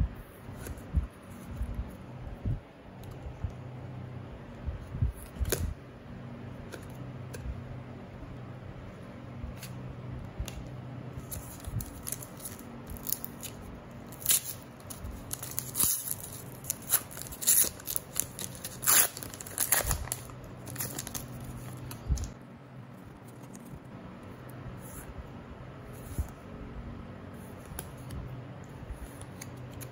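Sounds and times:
foil wrapper tearing and crinkling: 11.3s - 22.3s.

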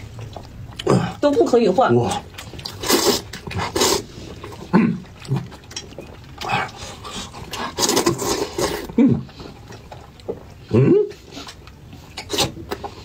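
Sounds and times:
wet eating sounds: 0.0s - 13.0s
person slurping noodles: 2.7s - 4.8s, 6.4s - 9.0s.

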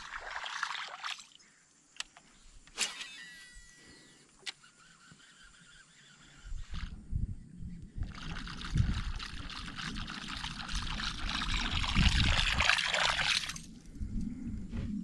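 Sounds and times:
water splashing and rushing: 0.0s - 1.3s, 8.2s - 13.7s.

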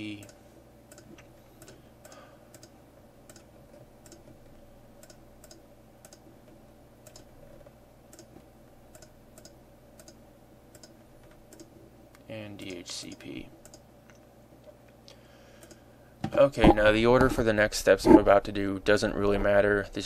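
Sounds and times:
faint steady hum: 0.0s - 20.0s
computer mouse clicking: 0.2s - 4.4s, 5.0s - 6.2s, 7.0s - 7.3s, 8.1s - 11.7s, 12.6s - 14.2s, 15.6s - 15.8s.

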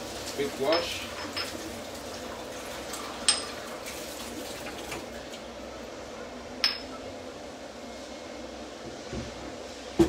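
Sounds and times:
kitchenware clink: 0.6s - 1.6s, 3.2s - 3.6s, 6.6s - 7.0s.

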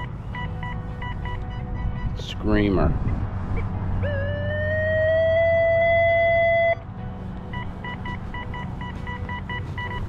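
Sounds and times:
metal detector steady tone: 0.0s - 2.5s, 7.5s - 10.0s.

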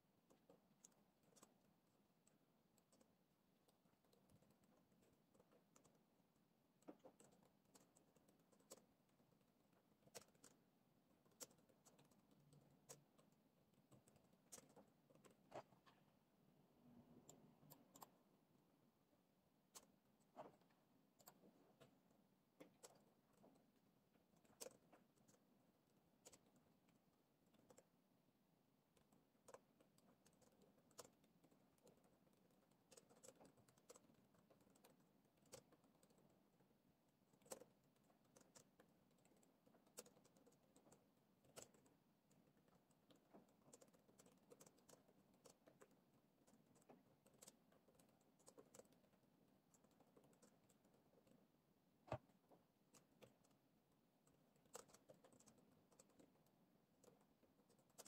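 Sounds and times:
laptop keyboard typing: 0.1s - 16.2s, 17.0s - 18.4s, 19.6s - 58.0s.

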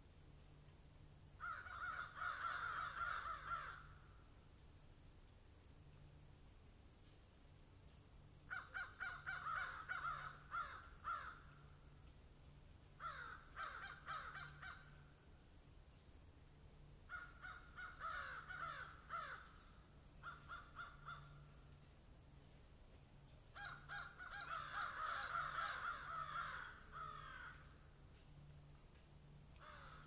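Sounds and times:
crow cawing: 1.4s - 4.2s, 8.5s - 11.7s, 13.0s - 15.2s, 17.1s - 21.6s, 23.5s - 27.8s, 29.6s - 30.0s.

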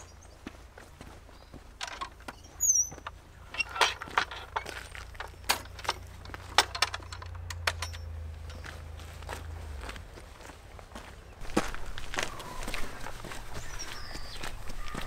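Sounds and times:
footsteps: 0.0s - 6.8s, 8.3s - 15.0s
wooden gate knocking and clicking: 1.8s - 2.4s, 3.0s - 8.6s.

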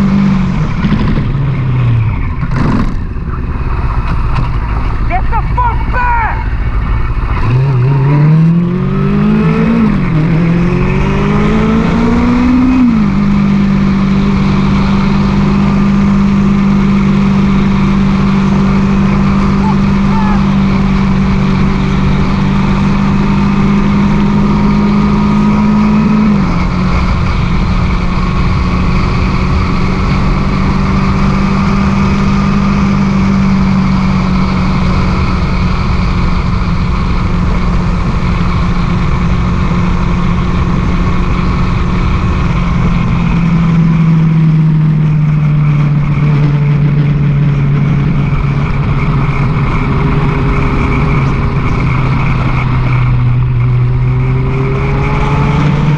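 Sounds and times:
motorcycle engine cruising: 0.0s - 55.9s.

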